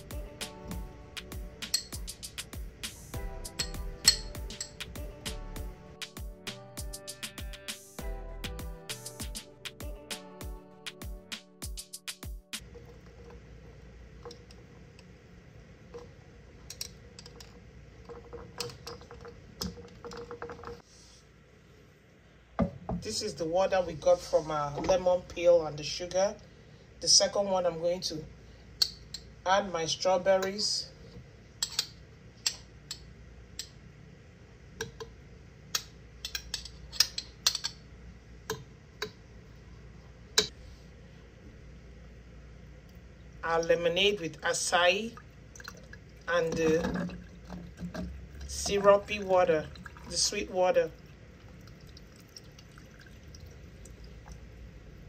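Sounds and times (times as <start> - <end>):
glass straw clinking in glass: 1.7 - 2.0, 3.6 - 4.8.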